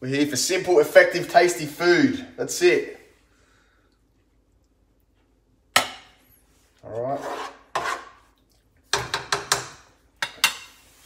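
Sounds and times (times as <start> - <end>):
scooper scraping a metal pan: 7.0 - 8.2.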